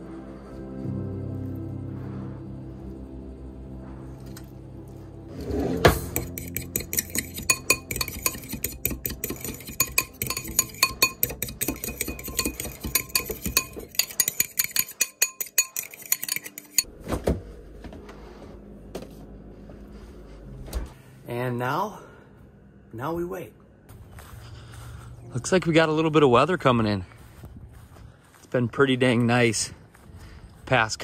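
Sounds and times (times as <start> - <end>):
spoon clinking against bowl: 6.2 - 16.9.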